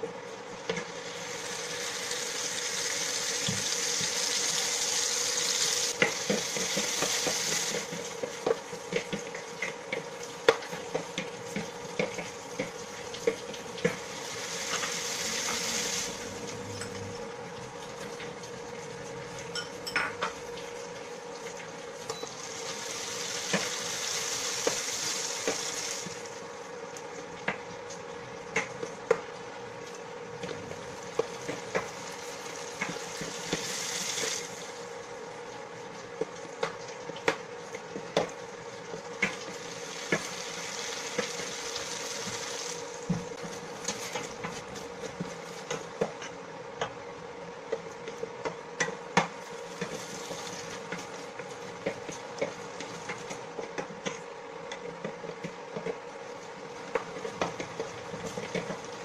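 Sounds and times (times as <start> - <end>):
vegetables sizzling in oil: 0.0 - 17.0, 17.8 - 26.8, 30.4 - 46.1, 48.9 - 53.9.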